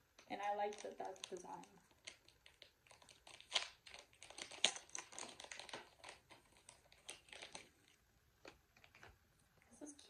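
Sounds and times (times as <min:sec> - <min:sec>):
plastic packaging crinkling: 0:00.2 - 0:09.2.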